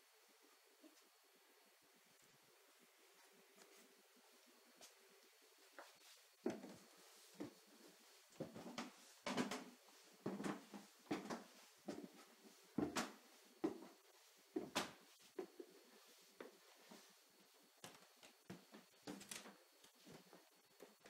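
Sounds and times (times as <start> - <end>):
footsteps on wooden stairs: 5.8 - 14.8.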